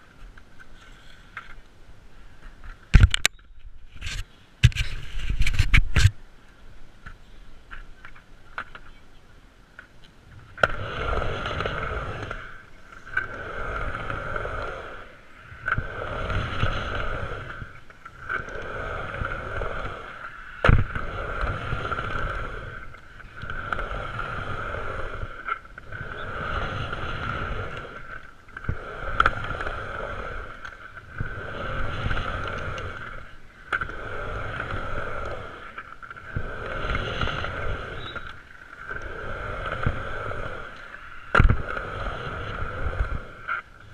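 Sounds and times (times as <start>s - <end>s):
skateboard wheels rolling on concrete: 0.0s - 43.9s
skateboard clacks: 7.0s - 43.9s.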